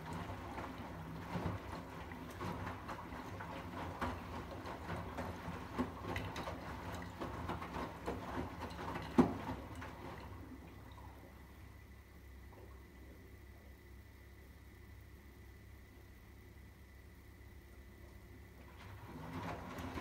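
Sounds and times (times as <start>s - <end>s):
washing machine sloshing laundry: 0.0s - 13.2s, 18.2s - 20.0s
low machine hum: 0.0s - 20.0s.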